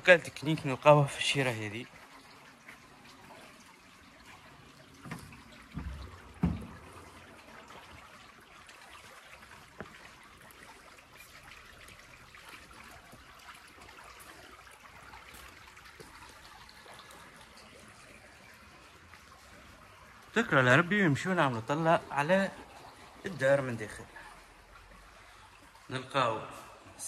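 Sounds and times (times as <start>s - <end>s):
water trickling: 0.0s - 27.0s
dull thumps: 5.1s - 6.9s.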